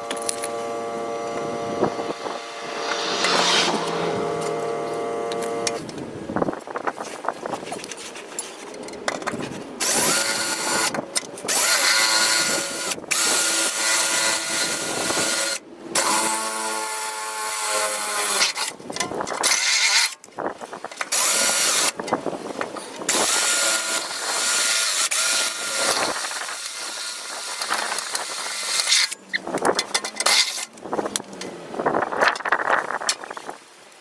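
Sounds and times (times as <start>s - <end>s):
cordless drill whining: 9.8s - 18.7s, 23.1s - 29.2s.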